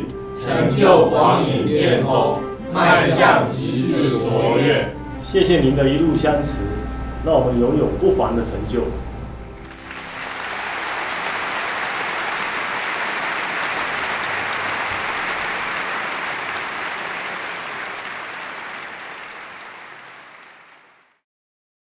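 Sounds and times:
crowd applauding: 9.6s - 21.2s.

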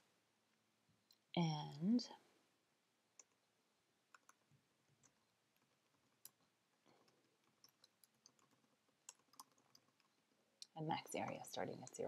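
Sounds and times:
keyboard typing clicks: 3.2s - 3.4s, 4.1s - 4.4s, 7.0s - 10.2s.

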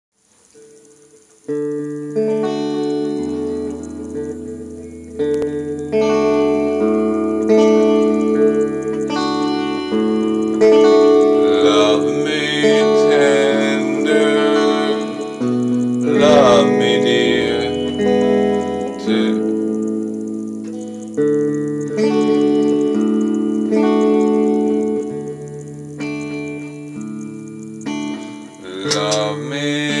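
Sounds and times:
electric guitar chords: 0.4s - 30.0s
man singing: 11.4s - 15.4s, 16.0s - 19.6s, 28.6s - 30.0s.

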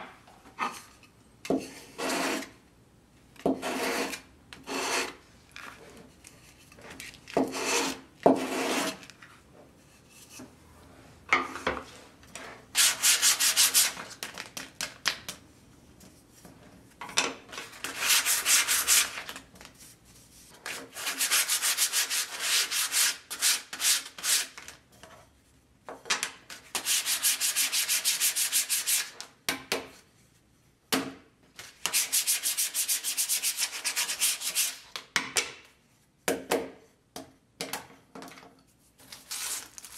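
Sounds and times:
sandpaper rubbing on wood: 12.8s - 14.0s, 17.9s - 19.2s, 20.9s - 24.5s, 26.8s - 29.1s, 31.9s - 34.8s.

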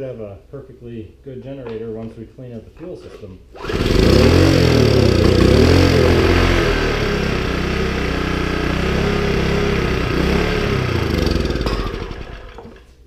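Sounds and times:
small generator engine running: 3.6s - 12.8s
starting fluid spraying: 3.6s - 12.9s.

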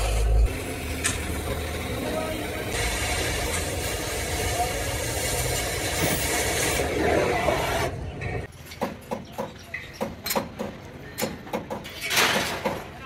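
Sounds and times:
cutting torch hissing: 0.0s - 8.0s.

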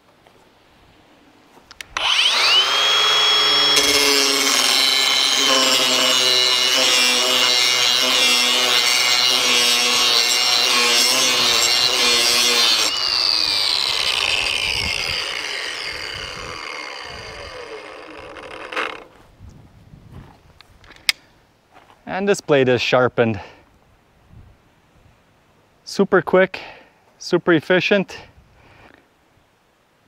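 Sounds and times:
angle grinder grinding steel: 1.7s - 19.2s
grinder winding down whine: 1.7s - 19.2s.

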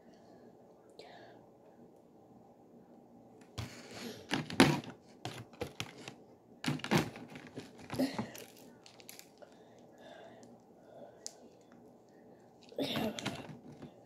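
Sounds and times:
crinkly wrapping rustling: 3.6s - 9.8s.

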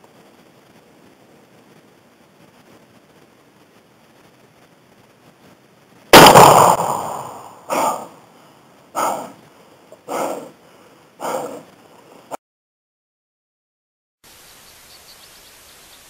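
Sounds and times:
shotgun shot: 6.1s - 8.0s
short bursts of sound: 6.1s - 8.1s.

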